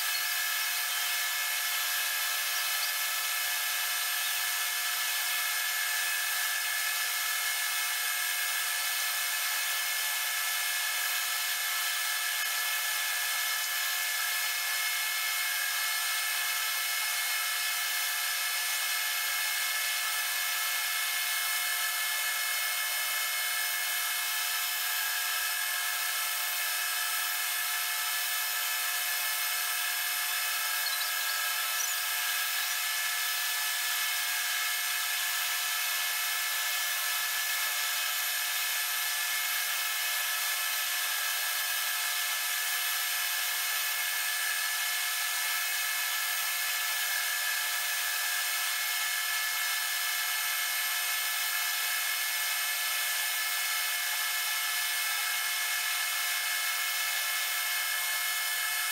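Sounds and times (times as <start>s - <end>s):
metal lathe whining: 19.6s - 41.4s.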